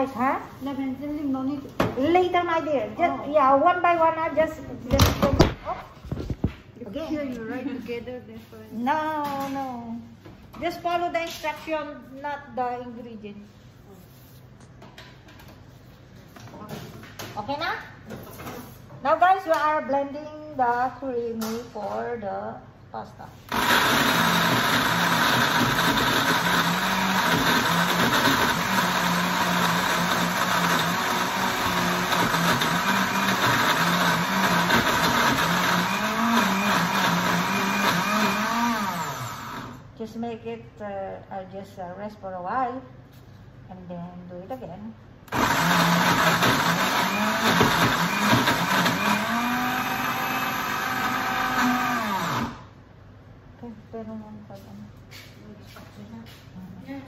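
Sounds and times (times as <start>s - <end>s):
blender motor running: 23.5s - 39.8s, 45.3s - 52.7s.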